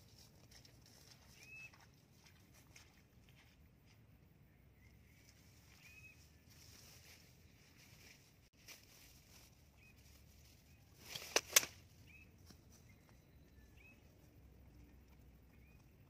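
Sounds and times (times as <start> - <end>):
small birds chirping: 4.3 - 8.3, 8.9 - 16.0
sharp clicks: 11.1 - 11.8.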